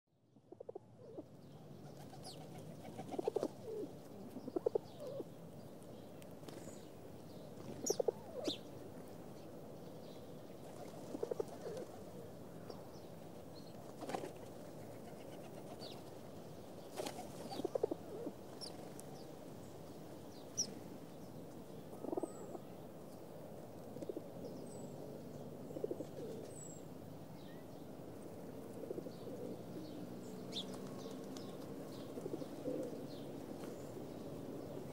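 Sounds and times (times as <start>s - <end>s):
pigeons cooing: 2.1s - 5.3s, 7.8s - 8.6s, 10.9s - 12.1s, 17.0s - 18.7s, 21.9s - 22.6s, 25.7s - 26.5s, 28.6s - 29.7s, 30.5s - 33.1s.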